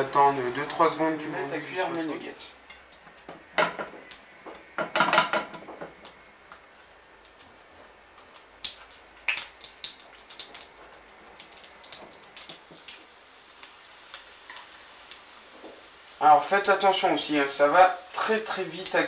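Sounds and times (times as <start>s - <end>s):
food sizzling in hot oil: 0.0s - 19.0s
oil popping: 2.7s - 15.9s.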